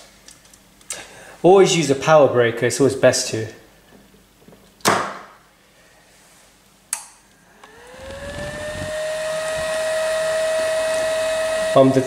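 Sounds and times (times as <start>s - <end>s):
cooling fan whine and hum: 5.5s - 12.0s.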